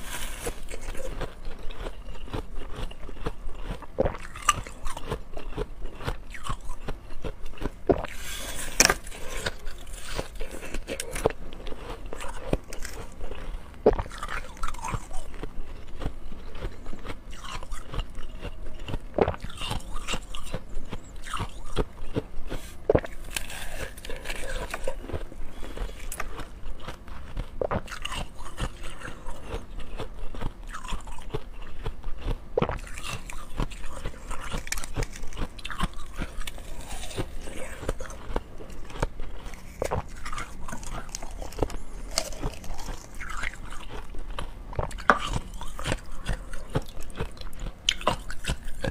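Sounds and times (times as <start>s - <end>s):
chewing: 0.0s - 48.9s
crunching of frozen slush ice: 0.0s - 48.9s.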